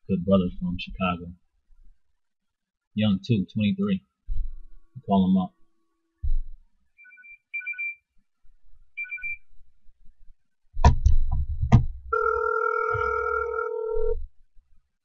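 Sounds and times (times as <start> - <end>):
short electronic beeps: 7.0 - 8.0, 9.0 - 9.4
telephone ringback tone: 12.1 - 14.2.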